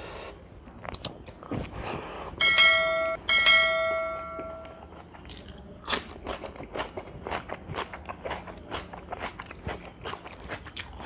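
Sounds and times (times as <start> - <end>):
notification bell dings: 2.4 - 4.7.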